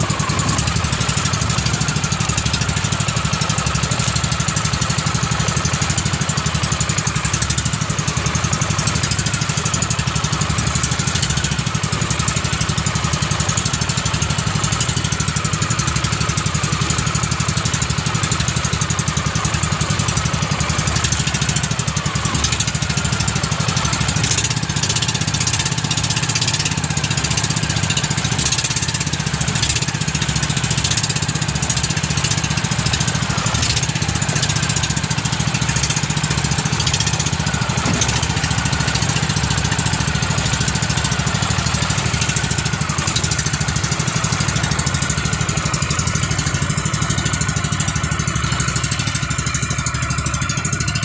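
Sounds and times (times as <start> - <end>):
boat engine running: 0.0 - 51.0
wind: 0.0 - 51.0
water splashing against hull: 30.4 - 47.9.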